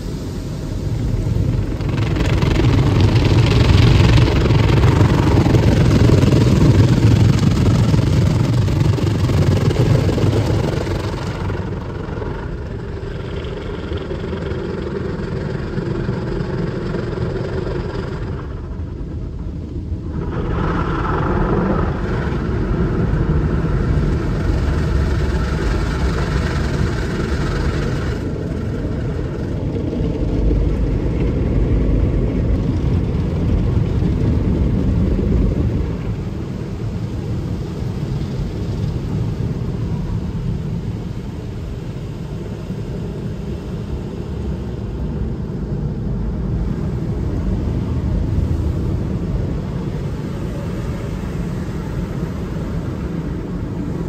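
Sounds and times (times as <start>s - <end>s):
car wash machinery rumble: 0.0s - 54.0s.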